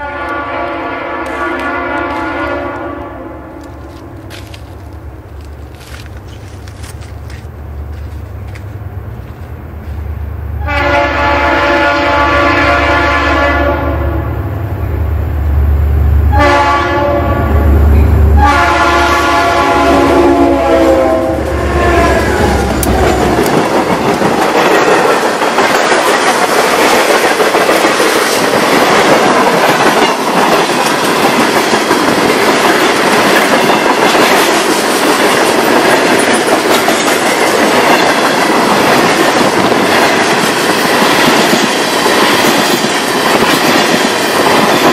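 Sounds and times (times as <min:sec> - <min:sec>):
locomotive air horn blasts: 0:00.0 - 0:04.4, 0:10.6 - 0:14.4, 0:16.3 - 0:23.4
locomotive engine rumble: 0:03.5 - 0:10.7, 0:14.3 - 0:26.9.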